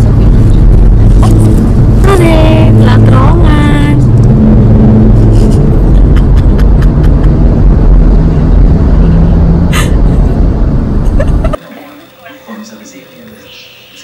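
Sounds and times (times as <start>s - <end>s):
car road and engine rumble: 0.0s - 11.6s.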